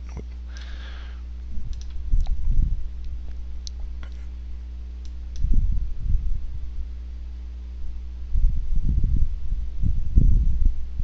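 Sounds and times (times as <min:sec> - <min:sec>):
low rumbling: 0:00.0 - 0:11.0
steady electrical hum: 0:00.0 - 0:11.0
computer mouse clicks: 0:01.7 - 0:02.4.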